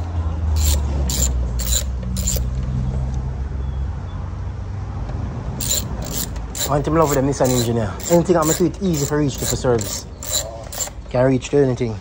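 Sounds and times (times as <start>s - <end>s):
socket ratchet clicking: 0.0s - 2.6s, 5.6s - 11.0s.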